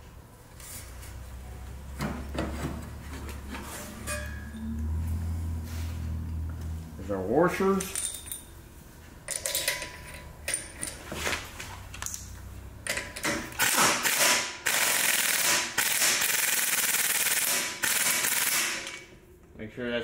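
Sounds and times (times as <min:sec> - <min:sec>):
small metal clinks: 0:07.8 - 0:08.6
impact wrench hammering: 0:12.9 - 0:19.0.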